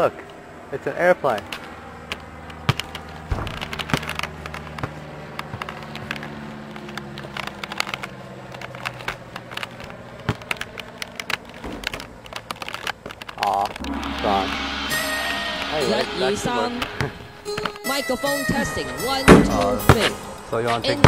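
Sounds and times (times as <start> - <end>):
propeller plane engine droning: 0.0 - 12.5, 13.8 - 20.8
sharp clicks and crackles: 5.5 - 13.8.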